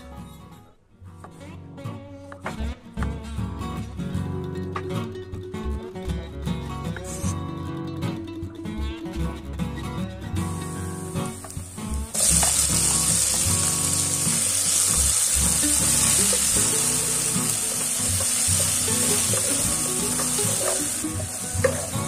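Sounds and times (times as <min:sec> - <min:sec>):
vegetables sizzling in oil: 0:10.7 - 0:22.0
spatula tapping pan: 0:17.5 - 0:22.0.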